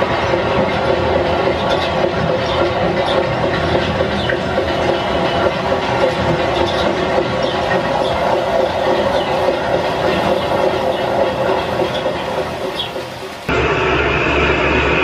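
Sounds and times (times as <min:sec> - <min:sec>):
model trains whirring on track: 0:00.0 - 0:15.0.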